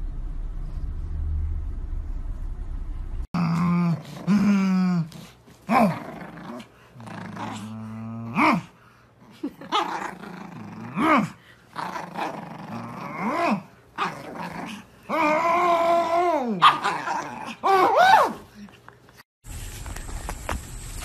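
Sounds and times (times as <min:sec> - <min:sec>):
dog play-growling and yipping: 0:03.4 - 0:18.5.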